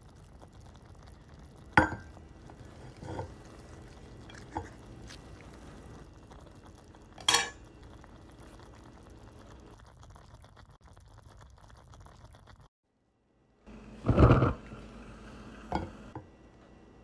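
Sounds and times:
pot simmering on stove: 0.0s - 12.7s, 13.6s - 17.0s
chopsticks stirring noodles in pot: 2.4s - 6.8s.

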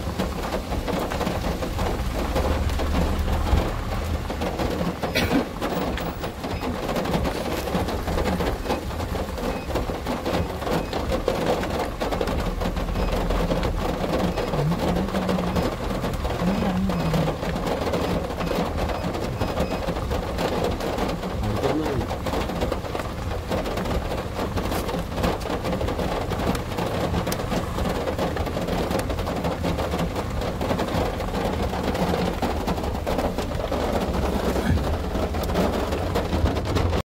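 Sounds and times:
heavy rain falling: 0.0s - 37.0s.

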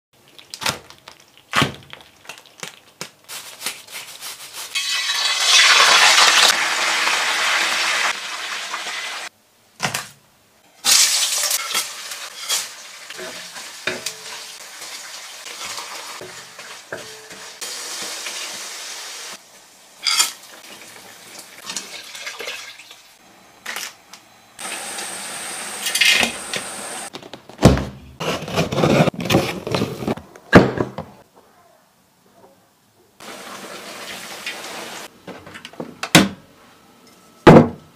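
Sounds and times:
oil sizzling: 0.2s - 9.3s, 10.8s - 27.1s, 33.2s - 35.1s
wooden spatula scraping a wok: 11.5s - 18.6s, 28.2s - 30.2s.

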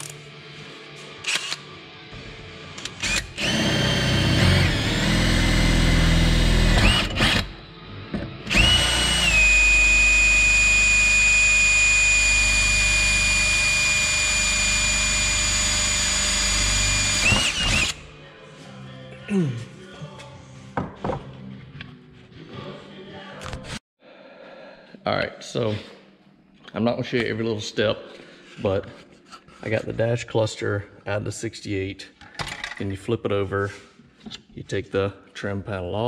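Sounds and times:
cordless drill drilling into metal: 2.8s - 7.5s, 8.5s - 18.0s.

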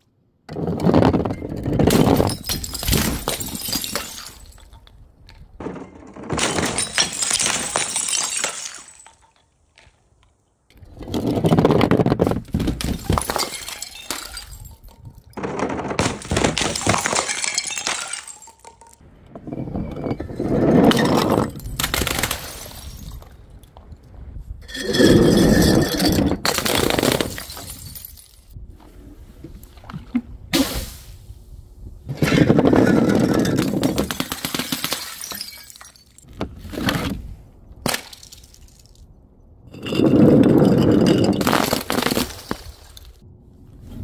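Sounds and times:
glass bottles smashing: 1.9s - 5.0s, 6.3s - 9.6s, 12.7s - 15.4s, 16.0s - 19.0s, 19.7s - 23.2s, 24.7s - 28.6s, 32.7s - 36.3s, 37.9s - 38.9s, 39.8s - 42.8s
glass shards tinkling: 13.1s - 15.3s.

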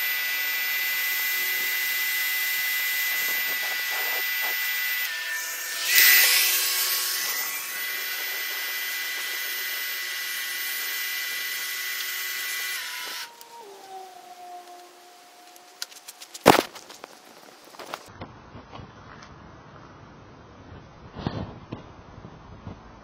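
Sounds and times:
pressure washer motor whine: 0.0s - 18.1s.

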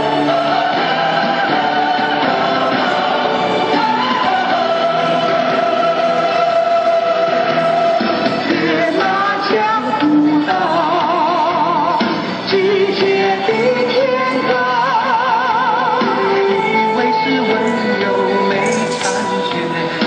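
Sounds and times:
slow melody with vibrato: 0.0s - 20.0s
steady accompaniment: 0.0s - 20.0s.

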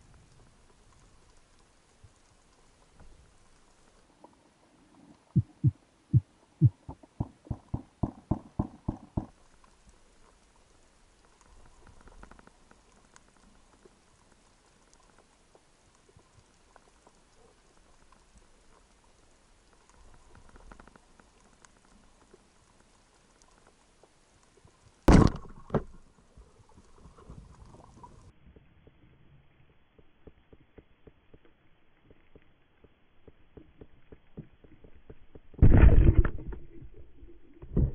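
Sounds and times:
faint low water noise: 0.0s - 37.9s
soft underwater thumps: 5.4s - 9.3s
sharp underwater knock: 6.6s - 9.3s.

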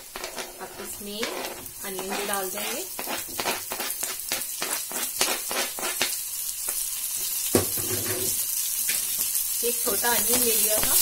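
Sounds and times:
food sizzling in hot fat: 0.0s - 11.0s
knock: 7.6s - 8.3s.

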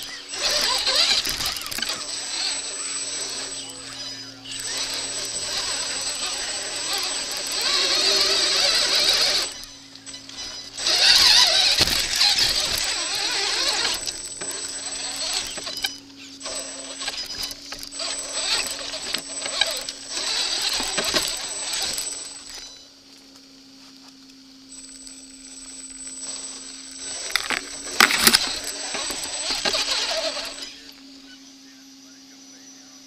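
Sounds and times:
tyres scrabbling on stone: 0.0s - 22.6s, 25.6s - 31.0s
electric motor and gears whining: 0.0s - 33.0s.

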